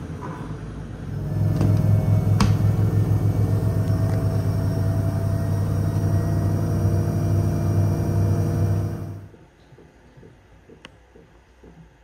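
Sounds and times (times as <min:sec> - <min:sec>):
washing machine spinning: 0:01.0 - 0:09.4.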